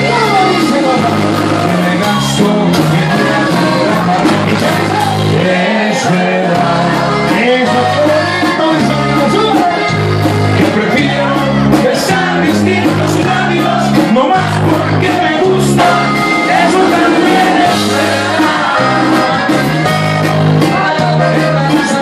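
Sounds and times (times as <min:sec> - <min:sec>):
accordion: 0:00.0 - 0:22.0
bass line: 0:00.0 - 0:22.0
drum kit: 0:00.0 - 0:22.0
guitar: 0:00.0 - 0:22.0
person singing: 0:20.6 - 0:22.0.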